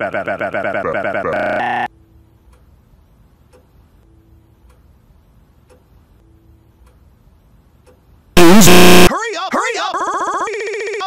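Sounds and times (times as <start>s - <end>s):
clock ticking: 2.4s - 2.7s, 3.3s - 8.1s
loud distorted blast: 8.4s - 9.1s.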